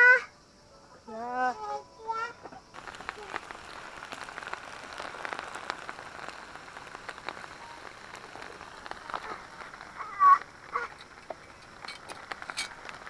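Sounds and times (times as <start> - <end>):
meat sizzling on charcoal grill: 2.0 - 13.0
fat popping and crackling: 2.7 - 13.0.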